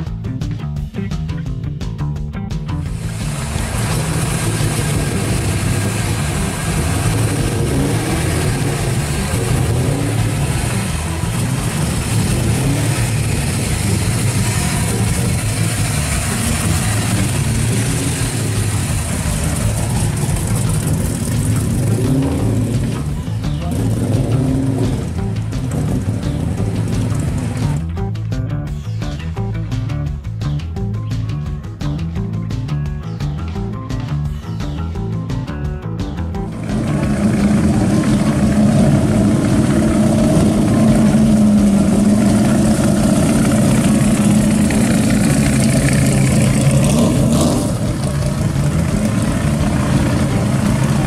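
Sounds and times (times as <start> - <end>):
car engine exhaust note: 2.7 - 28.1, 36.4 - 51.0.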